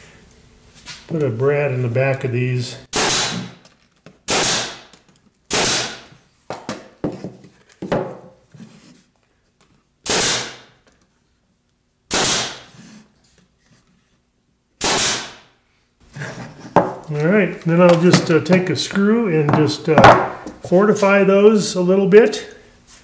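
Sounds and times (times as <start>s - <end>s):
nail gun shots with air hiss: 2.9s - 3.6s, 4.3s - 4.9s, 5.5s - 6.1s, 10.0s - 10.8s, 12.1s - 12.7s, 14.8s - 15.5s.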